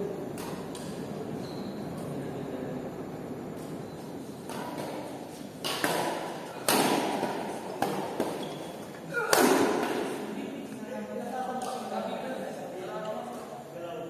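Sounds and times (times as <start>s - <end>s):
shoe squeak on gym floor: 1.4s - 2.0s, 8.3s - 8.9s.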